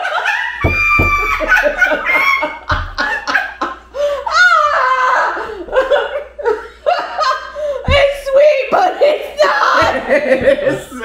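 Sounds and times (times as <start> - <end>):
women laughing: 0.0 - 8.5, 9.1 - 11.0
dull thumps: 0.6 - 3.7, 7.9 - 8.8, 9.7 - 11.0.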